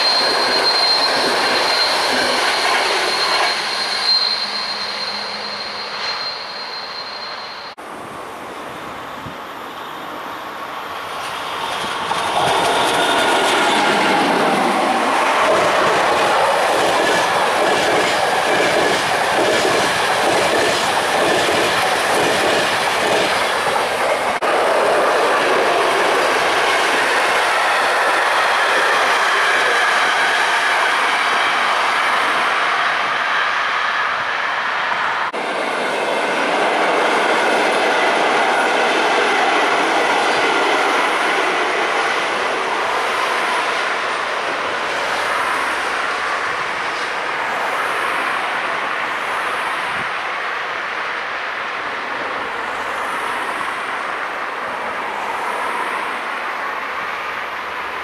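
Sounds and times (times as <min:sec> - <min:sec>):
train rolling rumble: 0:00.0 - 0:58.0
train wheels clicking over rail joints: 0:11.2 - 0:24.4.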